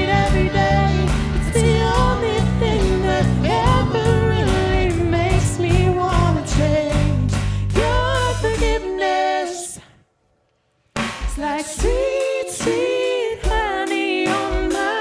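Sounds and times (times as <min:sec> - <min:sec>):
electric guitars: 0:00.0 - 0:08.2
bass guitar: 0:00.0 - 0:08.8
steady drum beat: 0:00.0 - 0:09.0, 0:11.0 - 0:15.0
people singing: 0:00.0 - 0:10.0, 0:11.3 - 0:15.0.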